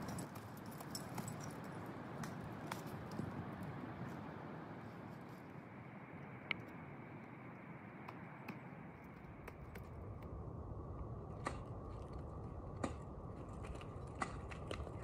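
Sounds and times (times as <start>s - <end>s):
low rushing noise: 3.6s - 14.8s.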